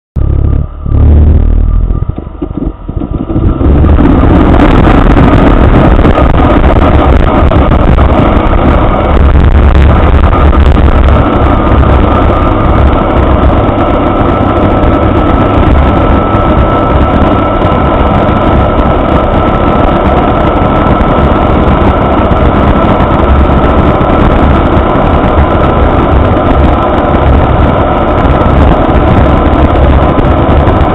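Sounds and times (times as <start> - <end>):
aircraft engine and propeller running: 0.2 - 30.9.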